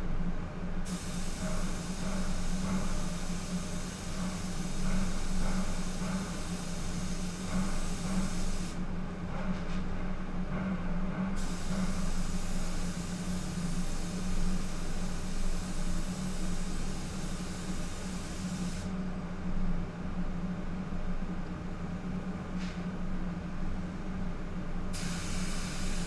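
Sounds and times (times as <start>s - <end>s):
air system hum: 0.0s - 26.0s
paint spray gun hissing: 0.9s - 8.8s, 11.4s - 18.9s, 25.0s - 26.0s.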